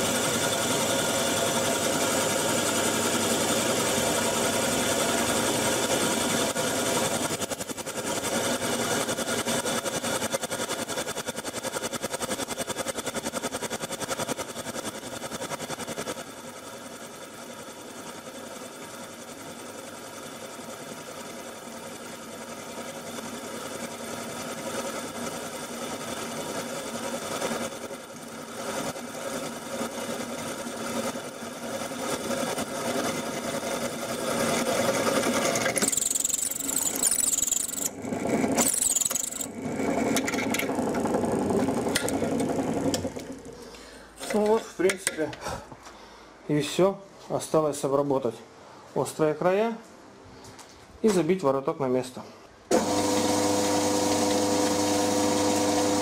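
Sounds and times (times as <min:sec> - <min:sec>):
drill press boring steel: 0:34.2 - 0:43.6, 0:52.7 - 0:56.0.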